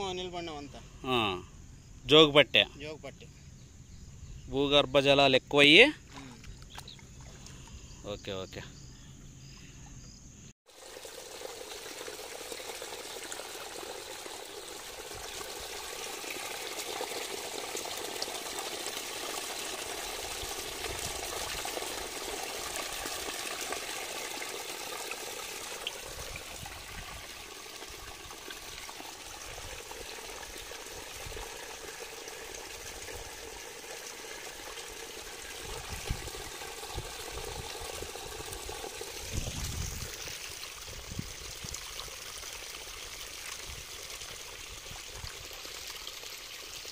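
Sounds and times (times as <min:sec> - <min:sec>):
water gushing from pipe: 0:10.7 - 0:46.9.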